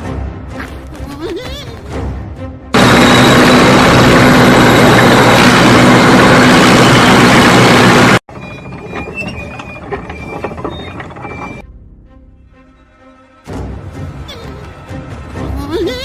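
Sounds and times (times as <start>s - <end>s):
clattering with high tones: 8.3s - 11.6s.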